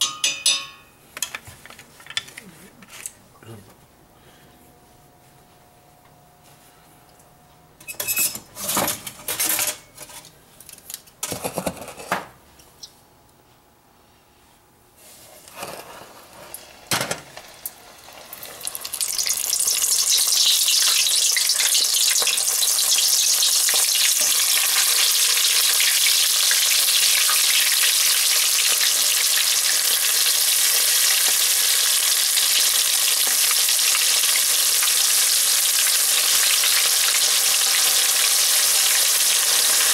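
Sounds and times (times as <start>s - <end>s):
fish deep-frying in oil: 17.5s - 39.9s.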